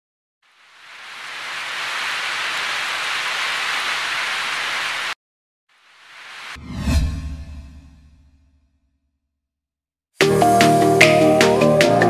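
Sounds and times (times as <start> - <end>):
steady hiss: 0.5 - 5.2, 5.8 - 6.6.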